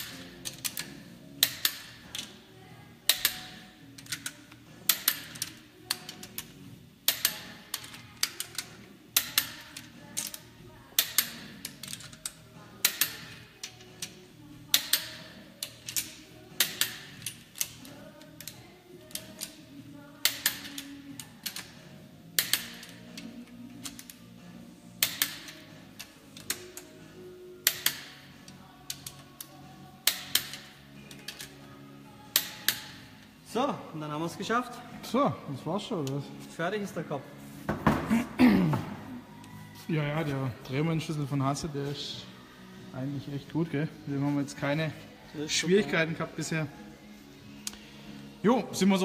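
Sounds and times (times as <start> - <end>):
torque wrench clicking: 3.1 - 6.5, 7.1 - 10.4, 11.0 - 19.6, 20.2 - 21.7, 22.4 - 23.0, 25.0 - 26.9, 27.6 - 28.2, 28.9 - 31.5, 32.3 - 33.0.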